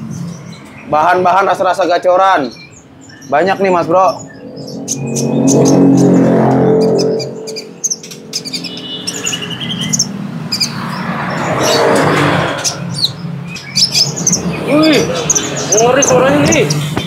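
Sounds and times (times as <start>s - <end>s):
sunbird singing high sharp chirps: 0.0s - 11.9s, 12.6s - 17.0s.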